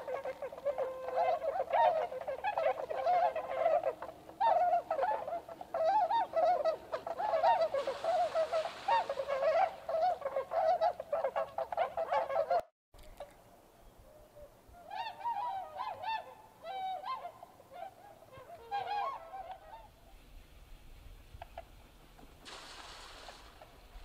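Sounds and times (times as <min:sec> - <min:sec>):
swans honking: 0:00.0 - 0:12.6, 0:14.7 - 0:20.3.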